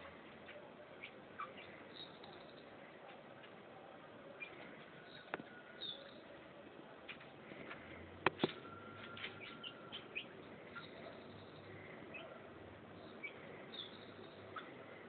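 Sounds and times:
chickens peeping: 8.8 - 12.4, 13.0 - 15.0.

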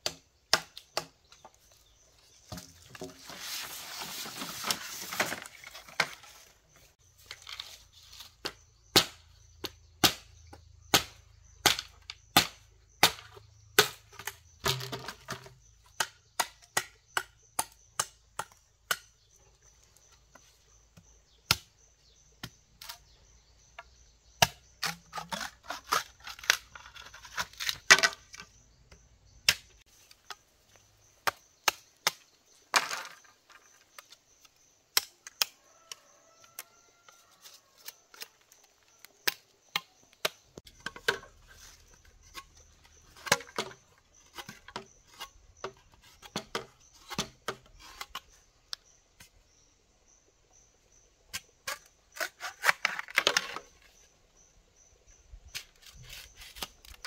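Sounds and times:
machete chopping bamboo: 0.0 - 1.5, 8.4 - 19.3, 21.0 - 21.8, 22.4 - 30.4, 31.1 - 33.0, 34.9 - 35.6, 39.0 - 48.2.

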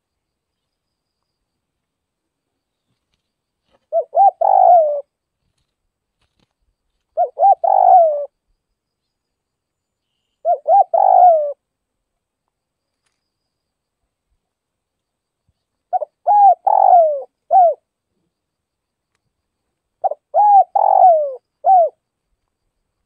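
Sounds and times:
dove cooing: 3.9 - 5.1, 7.2 - 8.3, 10.4 - 11.6, 15.9 - 17.8, 20.0 - 22.0.

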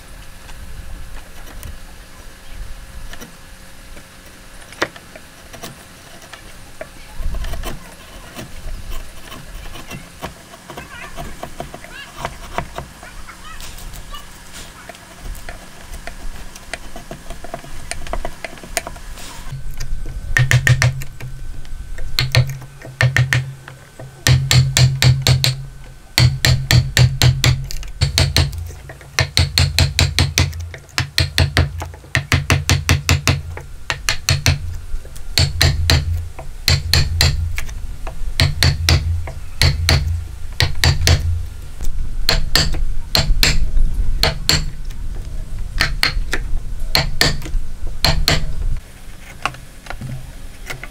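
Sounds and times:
wooden mallet striking chisel: 20.4 - 21.0, 22.2 - 23.5, 24.2 - 25.6, 26.2 - 34.6, 35.4 - 41.4, 42.3 - 44.8, 45.8 - 48.6.

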